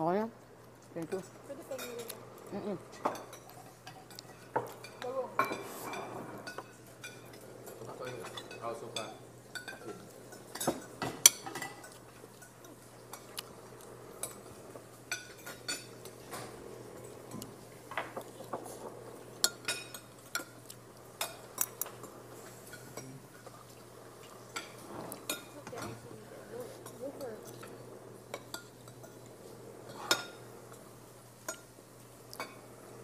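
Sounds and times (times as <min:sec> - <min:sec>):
cutlery clinking on ceramic bowls: 0:02.9 - 0:23.6, 0:24.2 - 0:26.0, 0:26.8 - 0:30.8.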